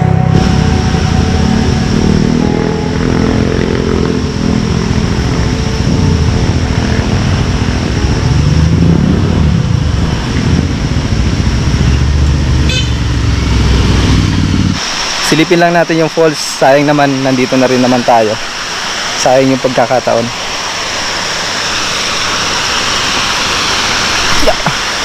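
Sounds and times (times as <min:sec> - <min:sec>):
motor scooter engines: 0:00.0 - 0:14.8
short horn toot: 0:12.6 - 0:13.1.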